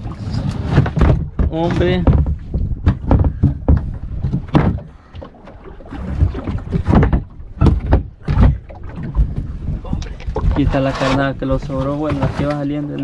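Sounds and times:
fishing gear knocking on hull: 0:00.7 - 0:10.8.

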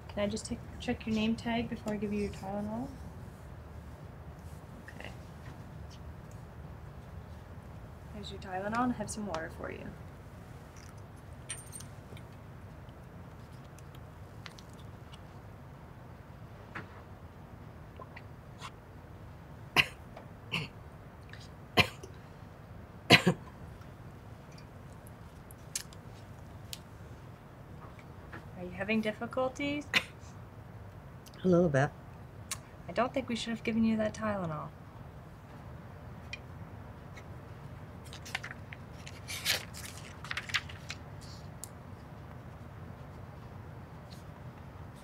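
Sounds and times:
woman coughing: 0:19.8 - 0:20.7, 0:21.8 - 0:22.0, 0:23.1 - 0:23.5, 0:29.9 - 0:30.2.

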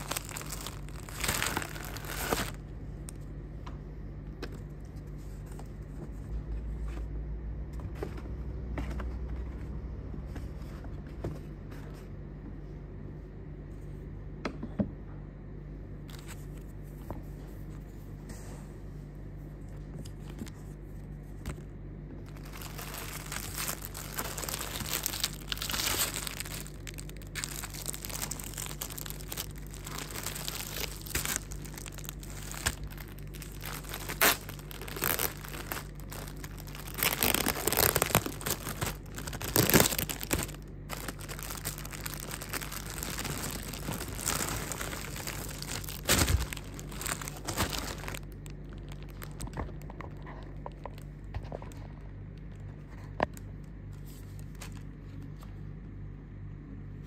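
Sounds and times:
plastic bag crinkling: 0:00.0 - 0:02.6, 0:22.2 - 0:53.4, 0:54.0 - 0:54.9
low hum: 0:00.0 - 0:57.0.

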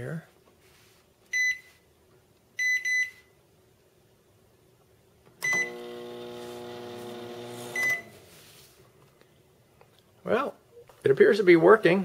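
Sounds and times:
microwave keypad beeping: 0:02.6 - 0:03.3, 0:05.4 - 0:06.1, 0:07.7 - 0:08.1
microwave oven humming: 0:05.4 - 0:08.2.

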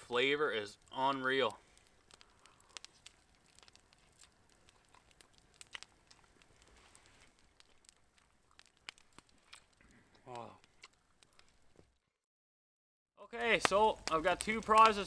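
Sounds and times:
faint small clicks and rustling: 0:00.8 - 0:12.0.

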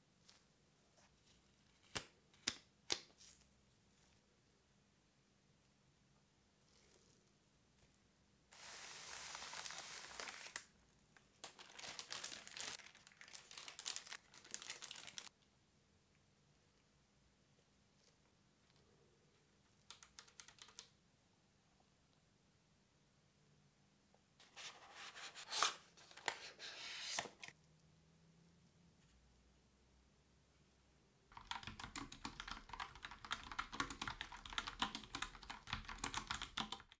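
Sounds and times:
tissue paper crinkling: 0:08.5 - 0:10.7, 0:11.4 - 0:15.3
fast typing on mechanical keyboard: 0:19.8 - 0:20.9, 0:31.3 - 0:37.0.

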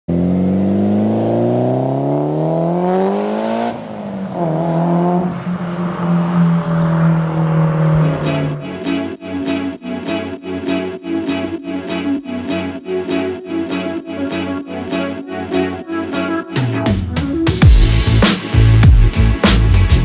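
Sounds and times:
turbocharged car engine accelerating: 0:00.1 - 0:09.0.

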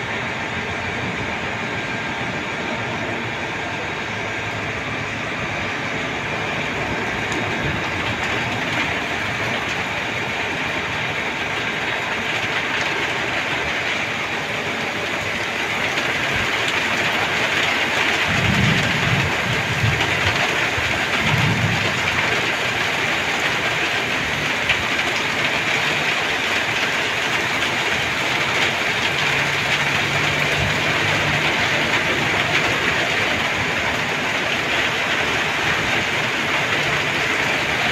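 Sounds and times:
low rumbles: 0:00.0 - 0:11.8
rain falling on a river: 0:00.0 - 0:37.9.

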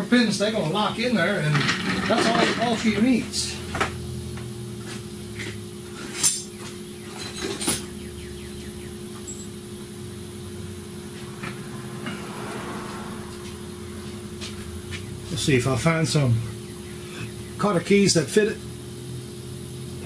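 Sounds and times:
steady electrical hum: 0:00.0 - 0:20.0
metal tools clinking: 0:01.5 - 0:03.0, 0:06.0 - 0:07.9.

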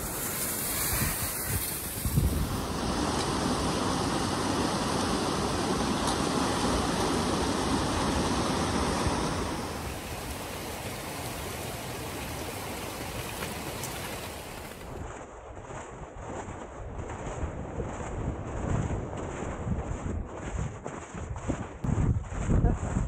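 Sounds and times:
creek rushing over rocks: 0:00.0 - 0:15.0.

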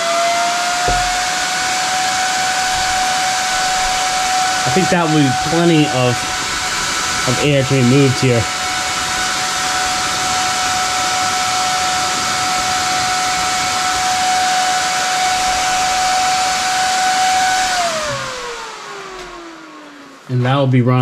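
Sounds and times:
cooling fan whining: 0:00.0 - 0:21.0.

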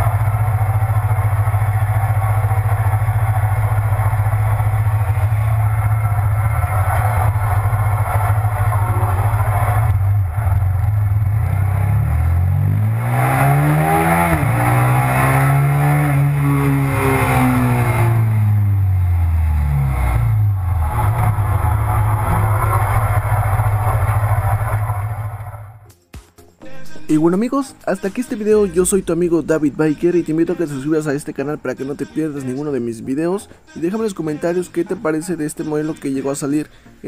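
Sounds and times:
motorcycle engine revving: 0:00.0 - 0:25.9.

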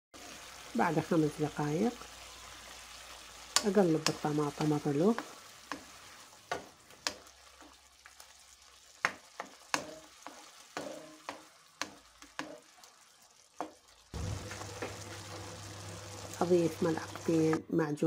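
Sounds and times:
tomatoes sizzling: 0:00.1 - 0:18.0
wooden spoon knocking a pan: 0:09.0 - 0:12.6.

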